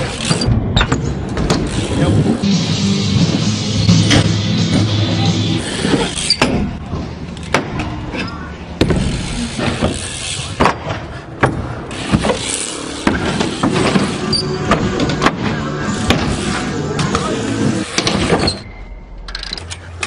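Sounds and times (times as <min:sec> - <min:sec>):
bike tyres rolling: 0:00.0 - 0:18.6
bike knocking on ramps: 0:00.2 - 0:01.9, 0:08.8 - 0:16.5.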